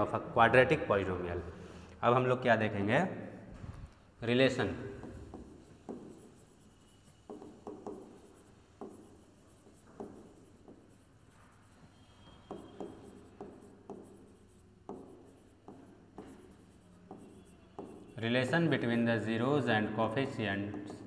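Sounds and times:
stylus tapping on a screen: 5.0 - 6.2, 7.2 - 10.9, 12.5 - 18.2, 20.6 - 21.0.

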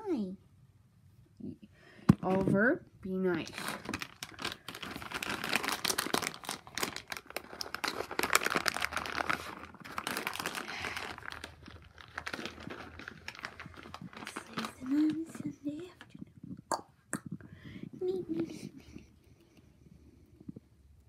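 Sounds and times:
material crinkling and rattling: 3.4 - 16.7.

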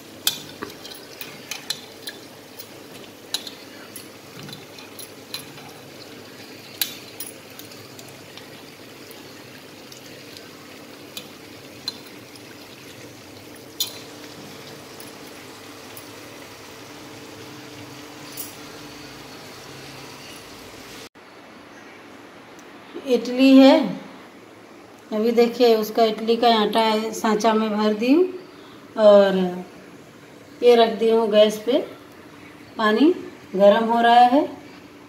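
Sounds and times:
faint steady hum: 0.0 - 35.0
clinks against metal bowl: 0.2 - 5.9, 13.6 - 14.1.

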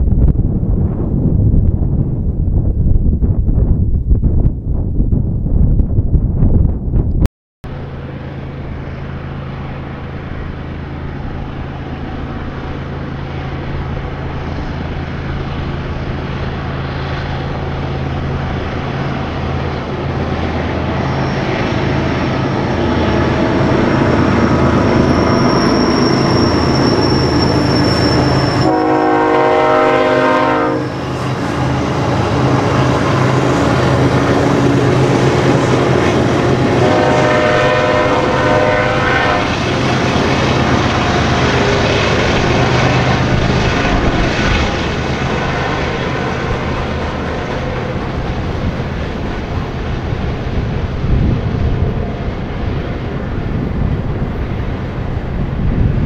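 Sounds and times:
diesel locomotive engines droning: 7.6 - 56.0
thin high whine: 23.8 - 29.1
locomotive horn: 25.2 - 31.2, 35.2 - 39.8.

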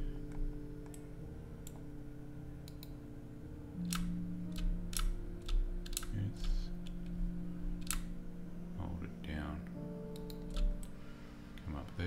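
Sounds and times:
low electrical hum: 0.0 - 12.0
computer mouse clicking: 2.6 - 3.0, 3.8 - 7.1, 7.8 - 8.1, 10.1 - 11.0.

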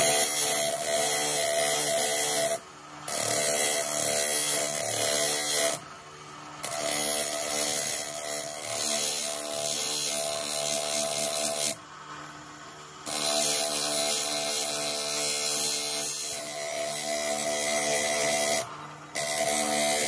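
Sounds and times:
grinding machine whine: 13.1 - 20.0
metal part grinding on abrasive disc: 13.1 - 20.0.

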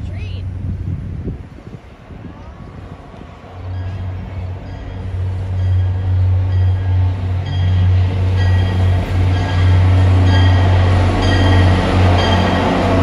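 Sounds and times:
diesel locomotive engine drone: 0.0 - 13.0
locomotive bell ringing: 3.6 - 13.0.

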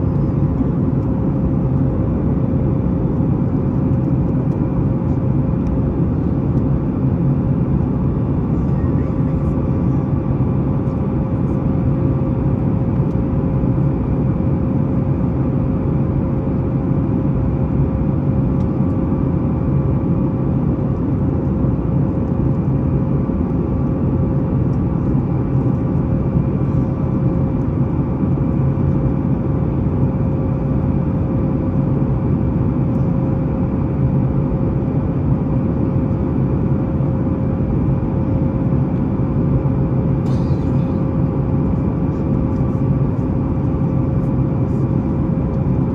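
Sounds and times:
jet engine drone in cabin: 0.0 - 45.9.

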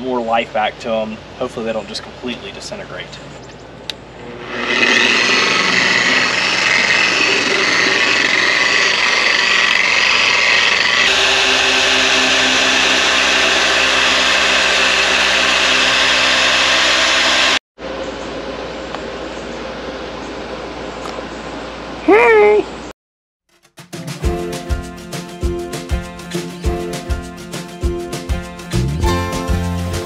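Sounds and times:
electric car polisher running: 4.3 - 17.6.

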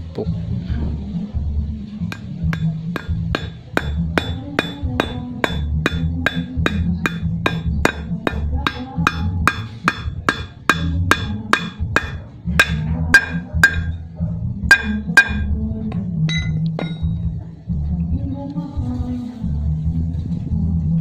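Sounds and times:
hammer striking metal rod: 2.1 - 14.0, 14.7 - 15.6, 16.3 - 17.2.

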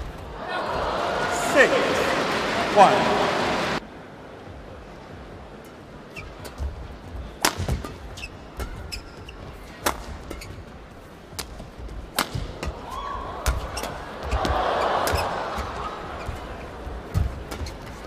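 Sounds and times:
crowd cheering: 0.2 - 3.8, 12.8 - 16.2
rackets hitting shuttlecock: 7.4 - 9.1, 9.8 - 10.6, 11.3 - 15.8.

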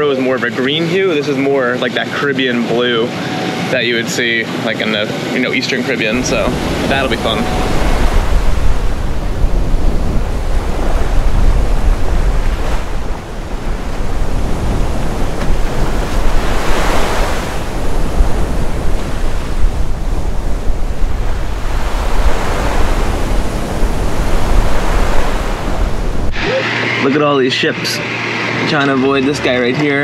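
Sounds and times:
choppy seas washing past: 0.0 - 28.6
wind buffeting microphone: 6.0 - 26.4.

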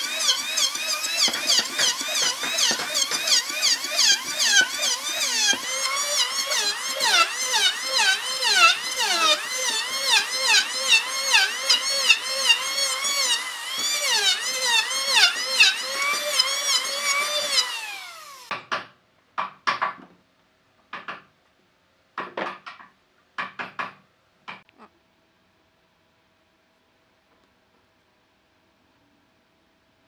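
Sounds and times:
electric planer whining: 0.0 - 18.5.

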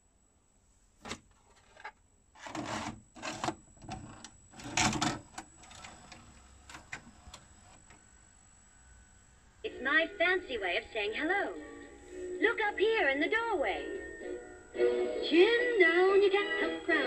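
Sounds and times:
faint steady deck hum: 0.0 - 17.0
cassette clicking into player: 2.4 - 8.0.

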